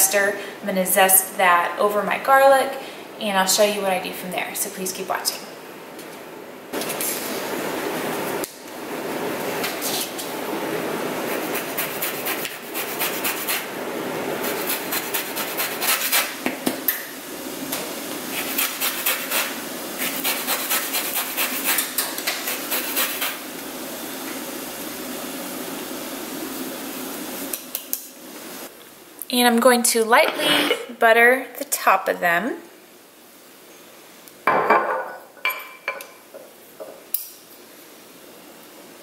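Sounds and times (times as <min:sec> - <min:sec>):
lemon scraped on zester: 0:14.4 - 0:16.3.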